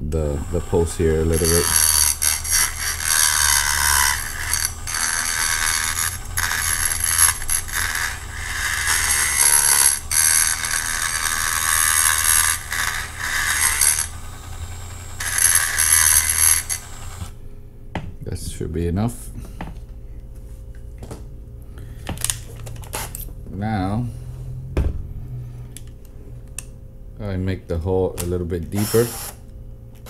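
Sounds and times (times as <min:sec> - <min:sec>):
rotary tool grinding metal: 0:00.0 - 0:17.3, 0:28.8 - 0:29.4.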